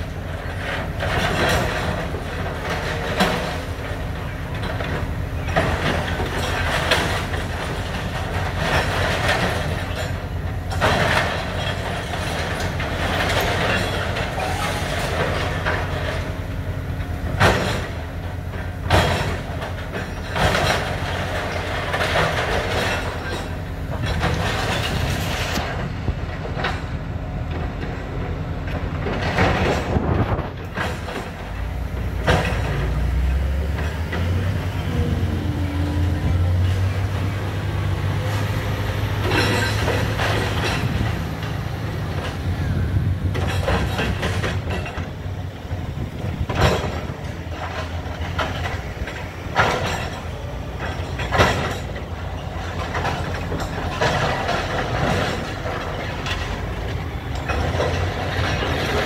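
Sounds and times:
excavator diesel engine: 0.0s - 59.0s
metallic clanks: 38.2s - 59.0s.

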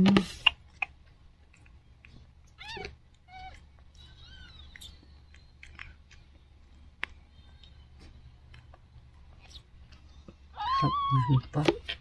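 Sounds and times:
cat meowing: 2.6s - 4.7s, 10.6s - 11.5s.

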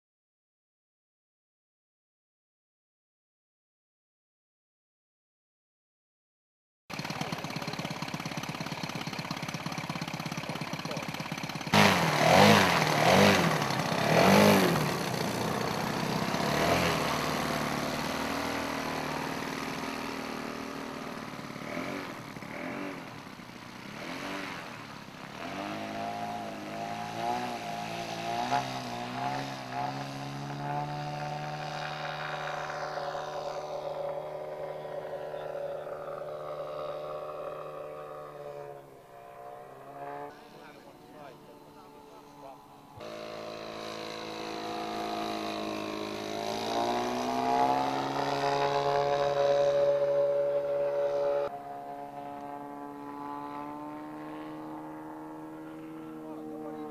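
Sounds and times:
model plane engine revving: 6.9s - 56.9s.

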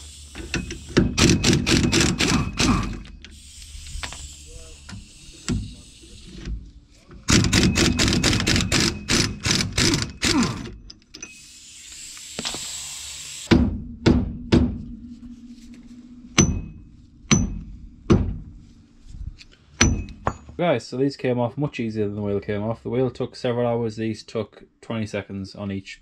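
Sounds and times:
sharp metal knocks ringing: 7.3s - 10.3s, 16.3s - 18.6s, 19.8s - 20.6s
short hiss: 11.3s - 13.5s.

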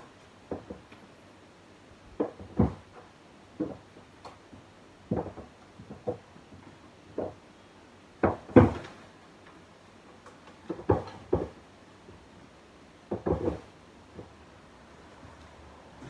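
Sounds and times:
painting panel knocking: 13.1s - 14.3s.

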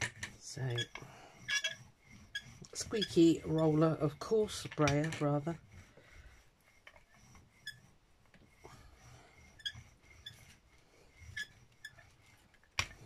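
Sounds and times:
roller squeaks: 0.0s - 5.6s, 6.8s - 8.0s, 9.4s - 13.0s
rubber roller rolling paint: 0.0s - 13.0s.

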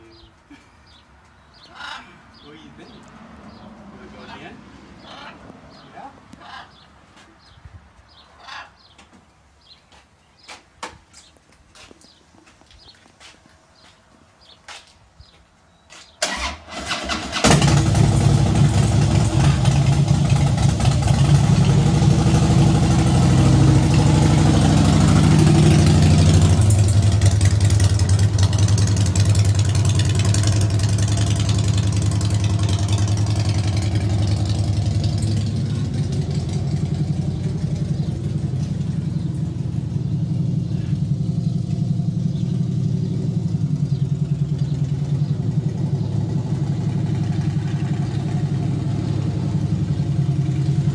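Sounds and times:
motorcycle engine: 16.2s - 50.9s.

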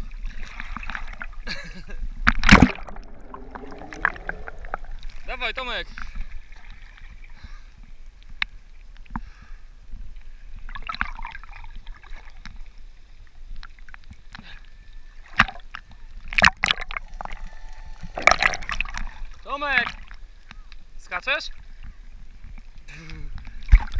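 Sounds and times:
sharp water splashes: 2.3s - 7.3s, 15.3s - 20.4s
sea water lapping: 2.4s - 8.4s, 14.2s - 22.8s
muffled underwater gurgling: 2.5s - 6.2s, 14.9s - 20.7s.

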